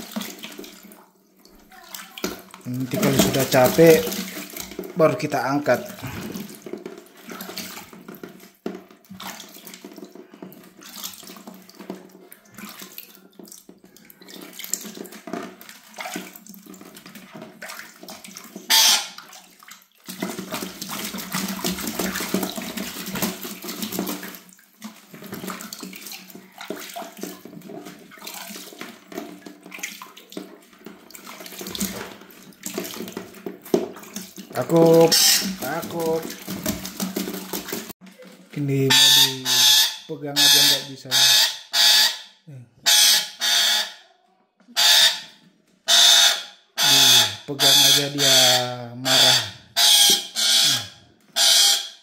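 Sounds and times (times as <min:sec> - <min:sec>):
hand sloshing water: 0:00.0 - 0:39.4
bird splashing in bucket: 0:00.0 - 0:41.4, 0:46.0 - 0:51.8.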